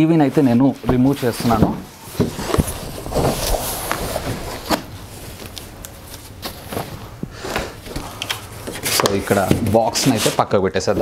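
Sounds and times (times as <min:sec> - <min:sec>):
plastic wrapping rustling: 0:00.0 - 0:11.0
cardboard box flaps scraping: 0:01.4 - 0:05.0.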